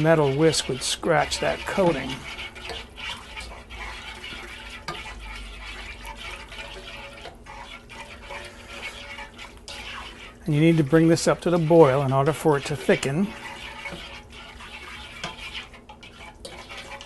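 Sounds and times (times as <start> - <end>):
whisk swishing liquid in pan: 0.0 - 17.0.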